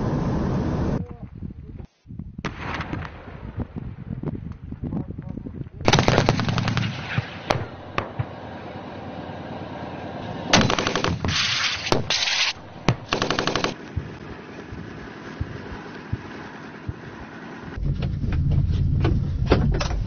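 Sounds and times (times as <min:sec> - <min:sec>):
single gunshots: 0:02.4 - 0:03.4, 0:10.5 - 0:13.8
automatic gunfire bursts: 0:05.9 - 0:07.2, 0:10.5 - 0:13.8.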